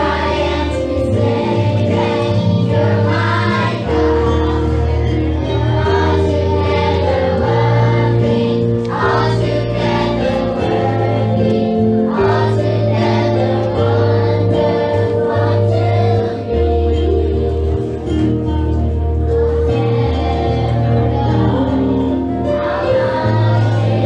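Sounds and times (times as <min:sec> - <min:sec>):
choir singing: 0:00.0 - 0:24.0
instrumental accompaniment: 0:00.0 - 0:24.0.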